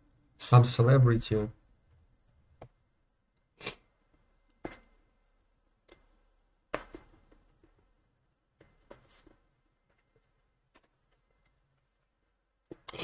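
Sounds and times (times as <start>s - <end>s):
faint keyboard and mouse clicks: 1.8s - 2.8s, 8.6s - 13.0s.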